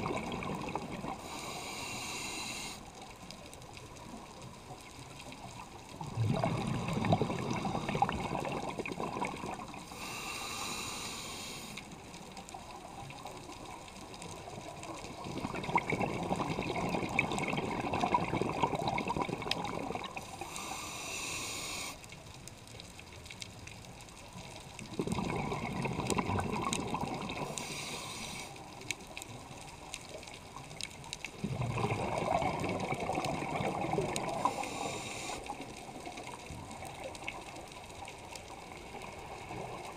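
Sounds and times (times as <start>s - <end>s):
bubbling exhalation underwater: 0.0s - 1.2s, 6.0s - 9.8s, 15.2s - 20.2s, 24.8s - 27.6s, 31.4s - 34.6s
hissing regulator inhalation: 1.1s - 2.8s, 9.8s - 11.9s, 20.2s - 22.0s, 27.4s - 28.6s, 34.3s - 35.7s.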